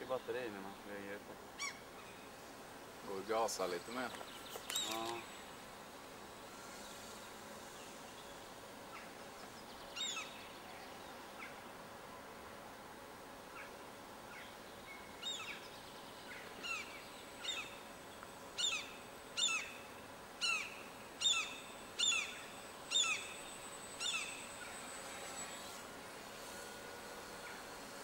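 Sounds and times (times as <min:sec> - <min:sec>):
gulls alarm calls: 0:20.4 - 0:23.4.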